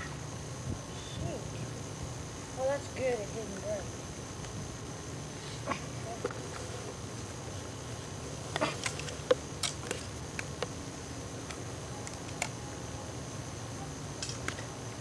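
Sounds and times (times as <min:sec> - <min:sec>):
camcorder hiss and hum: 0:00.0 - 0:15.0
faint high whine: 0:00.0 - 0:15.0.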